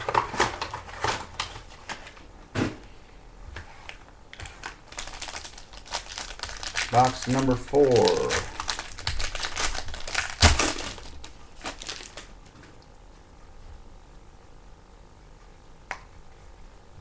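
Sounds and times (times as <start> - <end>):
foil wrapper crinkling and tearing: 4.4 - 12.4.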